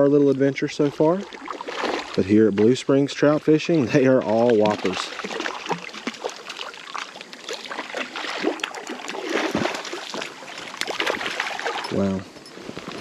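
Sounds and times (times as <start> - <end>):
fish splashing at the surface: 0.9 - 2.3, 4.3 - 11.9.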